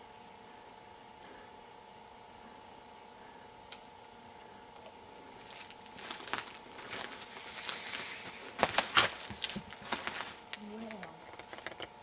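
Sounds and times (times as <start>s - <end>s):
footsteps crunching dry leaves: 5.2s - 11.0s.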